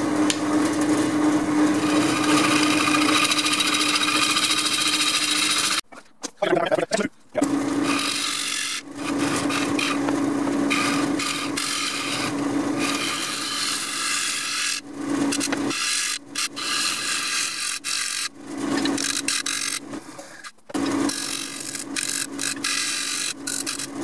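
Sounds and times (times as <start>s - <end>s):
lathe humming: 0.0s - 5.8s, 7.4s - 20.0s
gouge cutting wood on lathe: 0.8s - 5.8s, 7.4s - 20.1s, 20.8s - 24.0s.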